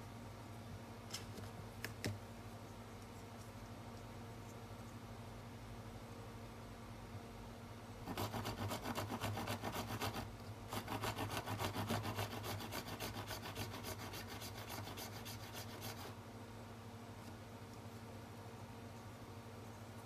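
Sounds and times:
fine saw rasping on plastic: 0:08.0 - 0:16.1.

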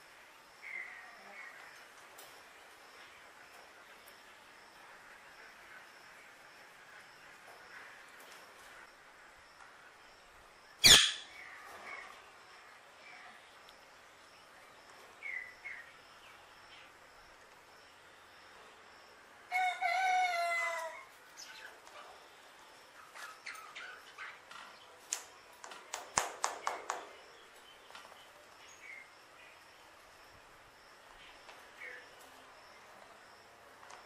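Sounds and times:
sharp clicking bird notes: 0:25.1 - 0:27.3.

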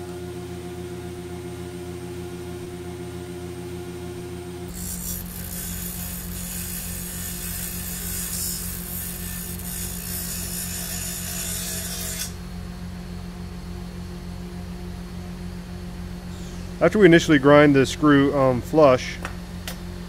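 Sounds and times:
grinder motor humming: 0:03.6 - 0:12.6
metal grinding on stone wheel: 0:04.7 - 0:12.4.

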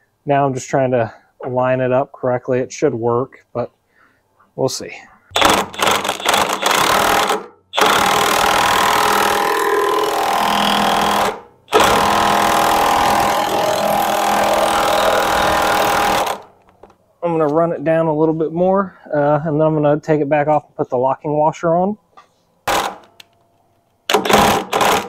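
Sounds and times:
impact wrench hammering: 0:05.3 - 0:16.5, 0:22.7 - 0:23.2, 0:24.1 - 0:25.0.

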